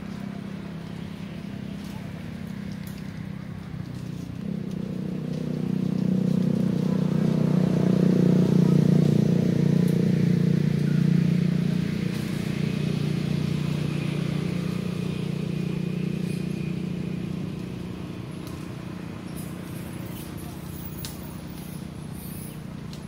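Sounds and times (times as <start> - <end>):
vehicle engine running: 0.0 - 23.0.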